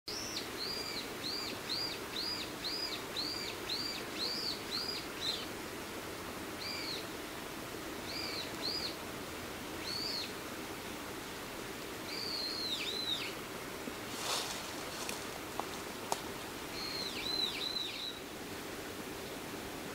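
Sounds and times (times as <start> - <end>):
songbird whistled notes: 12.1 - 13.4, 16.8 - 18.2.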